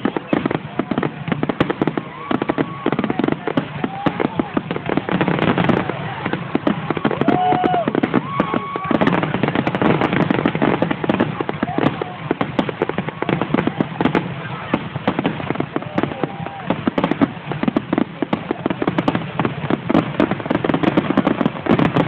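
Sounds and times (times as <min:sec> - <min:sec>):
fireworks bursting and crackling: 0:00.0 - 0:22.0.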